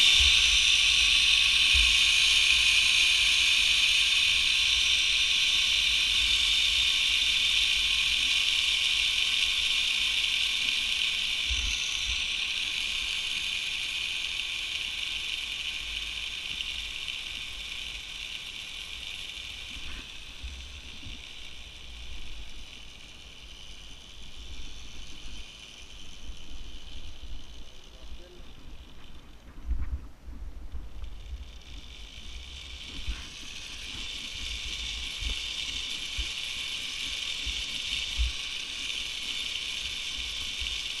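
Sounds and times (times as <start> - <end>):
zipline pulleys whirring: 0.0 - 41.0
wind thumps on microphone: 29.5 - 31.0.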